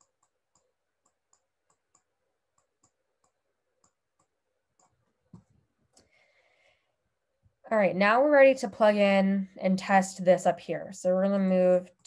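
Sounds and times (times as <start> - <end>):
stylus tapping on tablet screen: 0.0 - 6.0.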